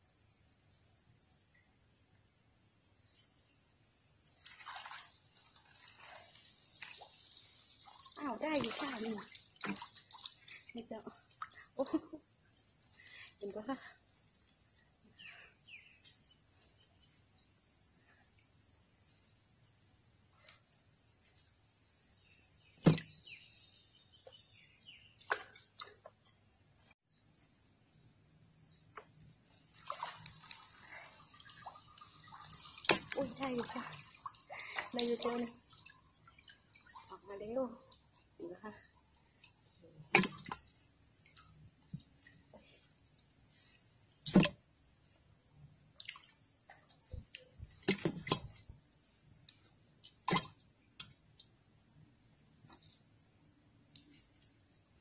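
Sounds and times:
insect chirring: 0.0s - 55.0s
net rustling out of water: 4.4s - 10.5s
water splashing: 4.4s - 12.3s, 25.2s - 26.1s, 29.0s - 38.6s, 40.0s - 42.5s, 44.2s - 44.6s, 45.9s - 48.8s, 50.1s - 50.7s.

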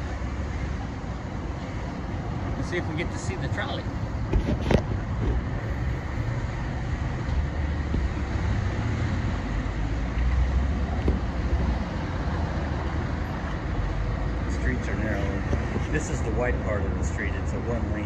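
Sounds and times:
traffic rumble: 0.0s - 18.0s
wind: 0.0s - 18.0s.

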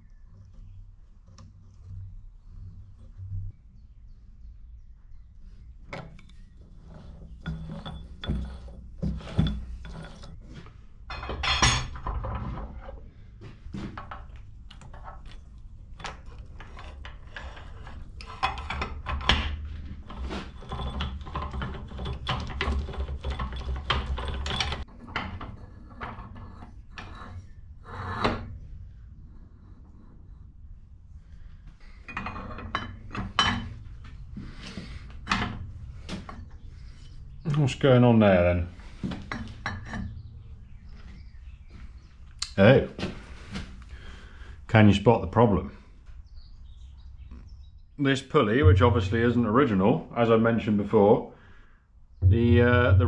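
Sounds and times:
metal parts clinking and knocking: 14.0s - 27.3s.

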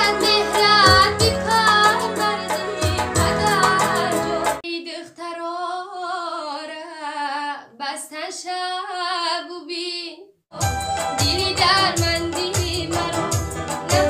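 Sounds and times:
electronic keyboard accompaniment: 0.0s - 4.6s, 10.6s - 14.0s
woman singing with vibrato: 0.0s - 14.0s.

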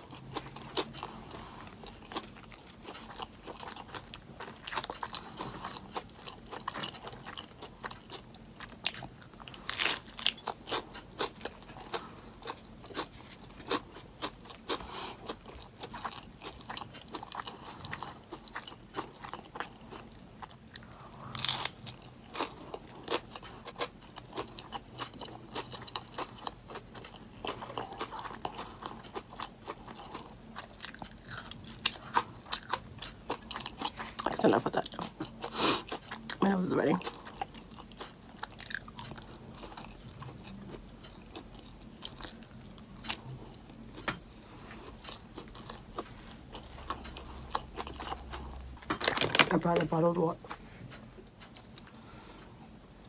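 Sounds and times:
chewing and crunching: 0.0s - 49.3s.

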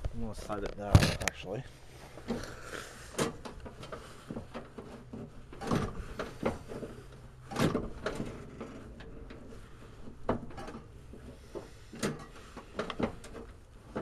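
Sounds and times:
brake lever clunks and rattles: 3.1s - 14.0s.

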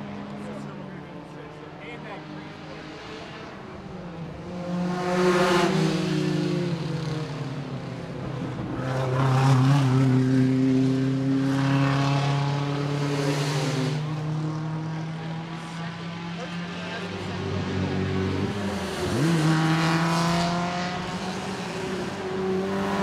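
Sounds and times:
sports cars racing past: 0.0s - 23.0s.

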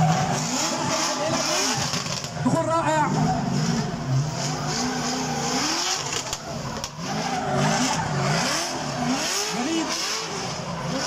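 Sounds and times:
car engine revving: 0.0s - 11.0s.

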